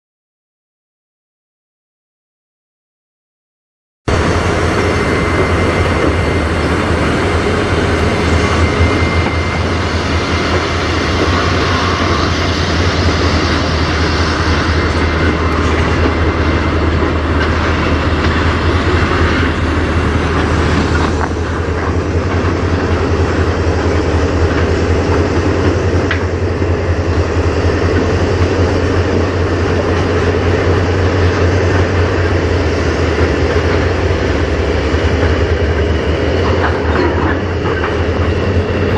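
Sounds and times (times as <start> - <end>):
diesel locomotives rumbling: 4.1 - 38.9
tank cars rolling on rails: 33.1 - 38.9.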